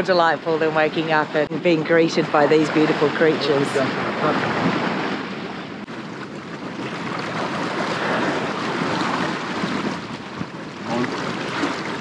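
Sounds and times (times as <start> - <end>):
sea water rushing along hull: 0.0 - 12.0
wind buffeting microphone: 0.0 - 12.0.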